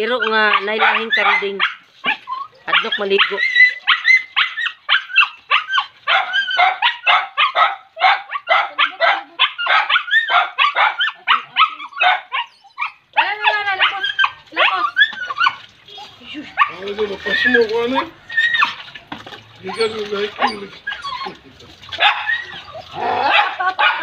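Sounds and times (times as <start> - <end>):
small dog barking: 0.5 - 14.8, 22.0 - 22.4, 23.0 - 24.0.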